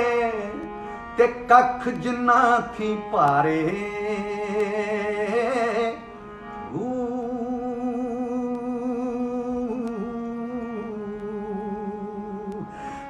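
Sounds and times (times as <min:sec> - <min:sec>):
man singing: 0:00.0 - 0:06.0, 0:06.7 - 0:12.8
harmonium: 0:00.0 - 0:13.0.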